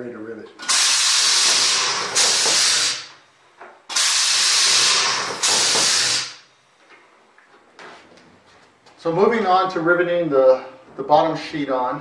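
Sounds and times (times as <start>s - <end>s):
compressed air hissing: 0.6s - 3.1s, 3.9s - 6.5s.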